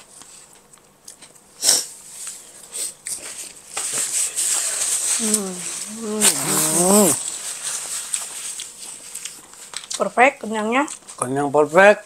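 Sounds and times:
paper napkin rustling: 0:03.5 - 0:09.2
chewing and mouth clicks: 0:08.1 - 0:10.0.

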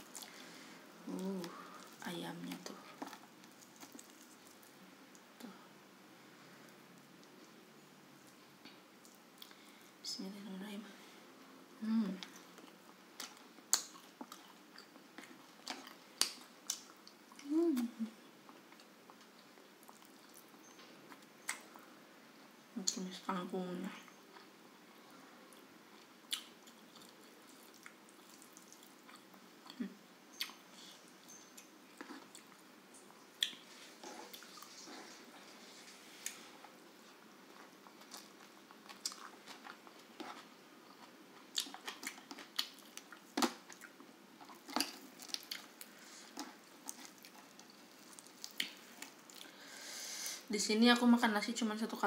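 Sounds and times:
person chewing food: 0:02.6 - 0:05.3, 0:12.2 - 0:17.5, 0:18.5 - 0:21.8, 0:25.5 - 0:32.7, 0:33.4 - 0:49.8.

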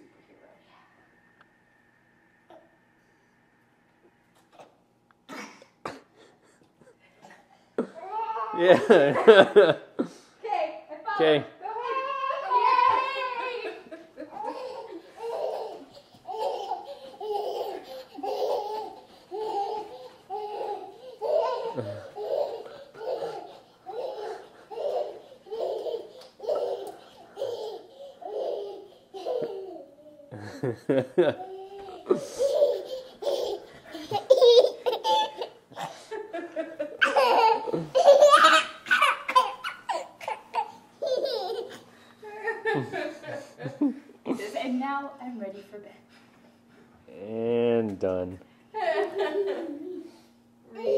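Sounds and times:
adult laughing: 0:07.8 - 0:10.1, 0:30.3 - 0:40.0, 0:41.1 - 0:44.4
toddler laughing: 0:12.3 - 0:36.1, 0:36.8 - 0:43.9, 0:49.0 - 0:50.9.

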